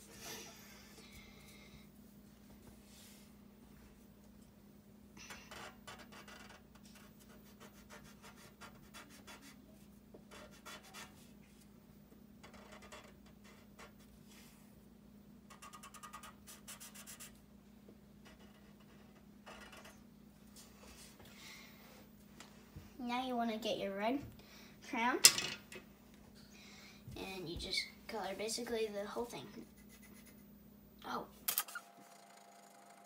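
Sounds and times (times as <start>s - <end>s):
marker scratching on paper: 5.5s - 9.6s, 10.3s - 11.2s, 15.5s - 17.4s, 18.2s - 19.9s, 29.7s - 30.4s.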